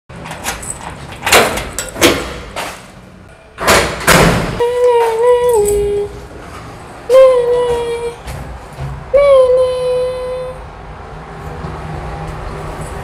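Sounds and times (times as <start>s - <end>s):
keys clicking in a door lock: 0.2s - 2.2s
metal door banging shut: 0.2s - 3.0s, 3.6s - 4.6s.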